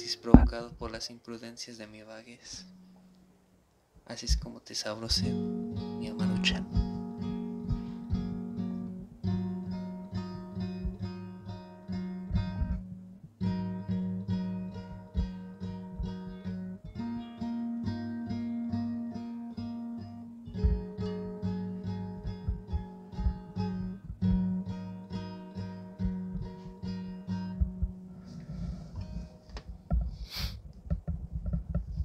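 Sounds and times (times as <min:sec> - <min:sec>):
strummed acoustic guitar: 0:05.1 - 0:29.6.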